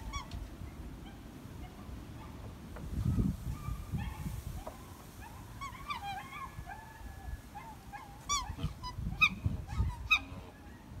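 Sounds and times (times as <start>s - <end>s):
swans bugling calls: 5.3s - 11.0s.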